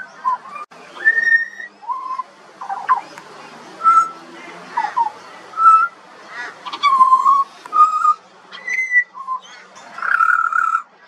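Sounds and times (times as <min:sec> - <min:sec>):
bird singing whistled notes: 0:00.0 - 0:03.1, 0:03.8 - 0:04.2, 0:04.9 - 0:06.0, 0:06.7 - 0:10.9.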